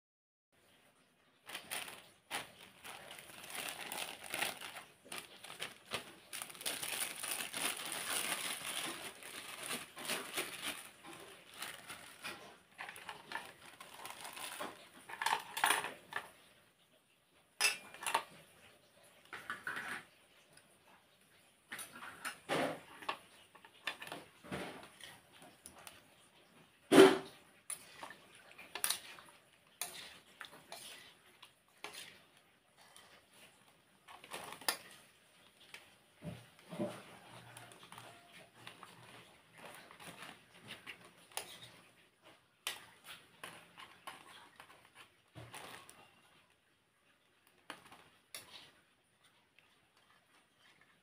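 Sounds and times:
plastic bags crinkling: 0:01.4 - 0:16.2, 0:27.2 - 0:42.0, 0:42.6 - 0:46.6, 0:47.3 - 0:48.9
ladle and spoons clinking on pots: 0:17.6 - 0:18.4.

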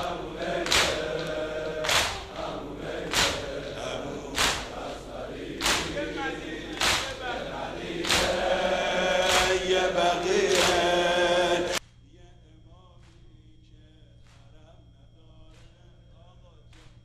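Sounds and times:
crowd chanting a lament: 0:00.0 - 0:11.8
chest-beating slaps: 0:00.1 - 0:11.0.

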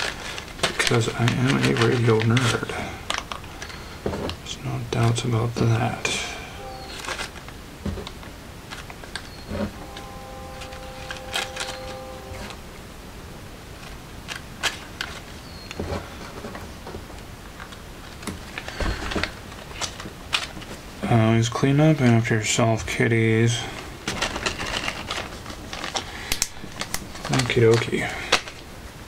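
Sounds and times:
steady tone: 0:05.6 - 0:07.3, 0:09.4 - 0:13.4.

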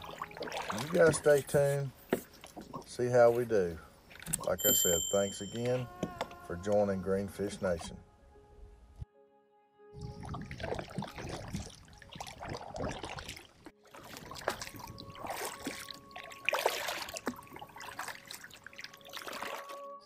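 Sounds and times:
water dripping off paddle: 0:00.0 - 0:01.4, 0:10.2 - 0:19.7
paddle strokes through water: 0:00.0 - 0:03.5, 0:10.0 - 0:19.9.

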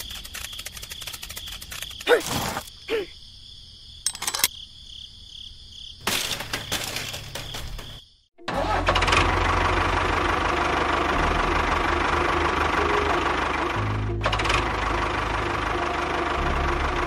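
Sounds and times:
rattling clicks: 0:04.1 - 0:04.5.

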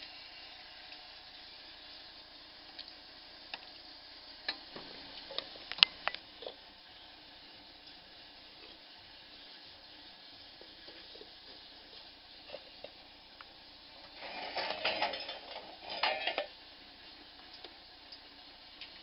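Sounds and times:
faint background hiss: 0:00.0 - 0:19.0
metal parts clattering: 0:14.2 - 0:16.5.

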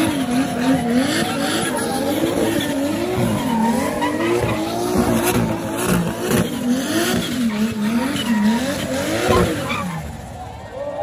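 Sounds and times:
tyres squealing: 0:00.0 - 0:06.4
car engine revving: 0:00.0 - 0:10.4.

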